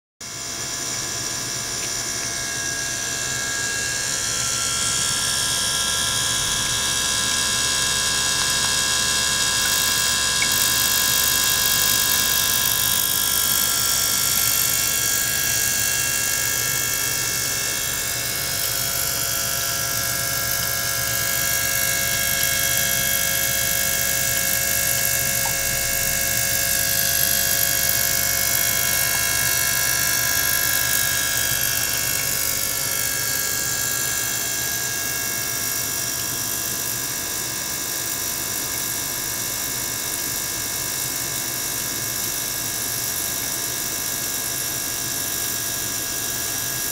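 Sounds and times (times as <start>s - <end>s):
high-pitched pump whine: 0.2s - 46.9s
water pump hiss: 4.0s - 34.5s.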